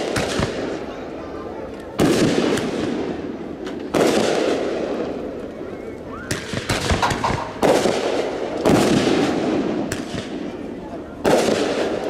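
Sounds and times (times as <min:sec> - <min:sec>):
fireworks booms: 0:00.0 - 0:00.9, 0:01.8 - 0:12.0
sharp cracks: 0:01.9 - 0:03.0, 0:03.6 - 0:05.2, 0:06.2 - 0:10.4.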